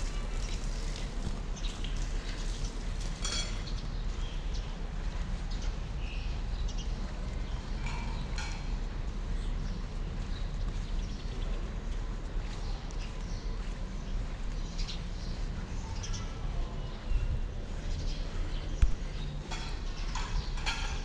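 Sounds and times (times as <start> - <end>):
steady low rumble: 3.9 - 20.3.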